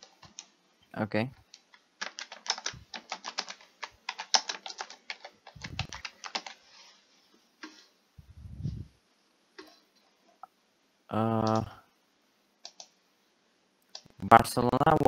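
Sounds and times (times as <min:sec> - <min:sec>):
computer keyboard typing: 0:00.0 - 0:00.5, 0:01.5 - 0:06.6, 0:11.4 - 0:11.7, 0:12.6 - 0:13.0.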